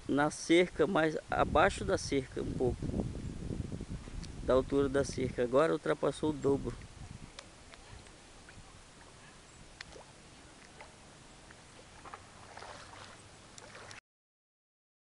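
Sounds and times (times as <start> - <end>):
water lapping: 6.8 - 14.0
small splashes: 9.8 - 11.0, 11.7 - 14.0.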